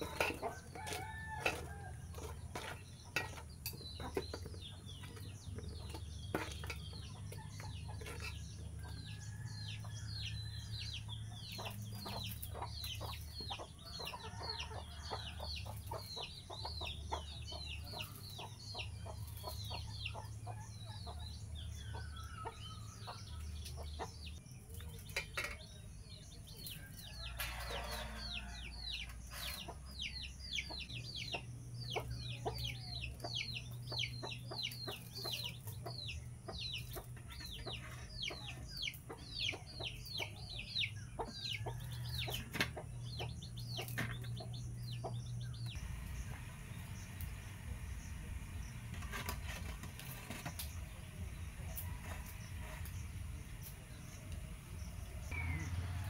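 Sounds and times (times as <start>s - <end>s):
utensils clinking on metal plates: 0.0s - 8.4s, 25.0s - 25.7s
chick peeping: 0.0s - 56.0s.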